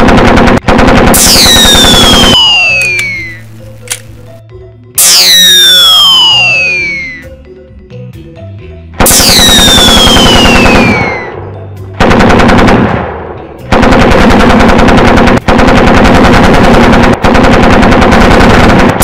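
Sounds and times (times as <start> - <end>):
automatic gunfire bursts: 0.0 - 4.0, 9.1 - 11.2, 12.0 - 13.0, 13.7 - 19.0.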